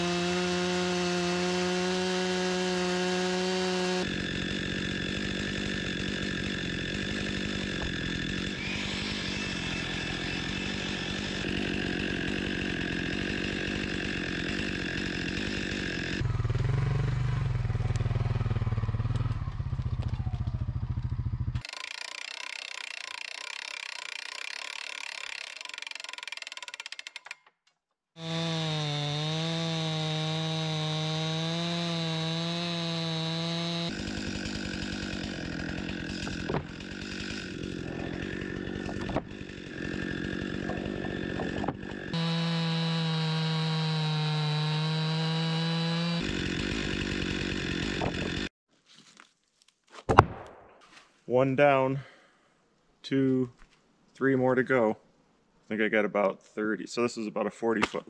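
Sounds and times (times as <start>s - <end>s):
chainsaw cutting log: 0.0s - 20.6s, 21.5s - 27.4s, 28.2s - 48.5s.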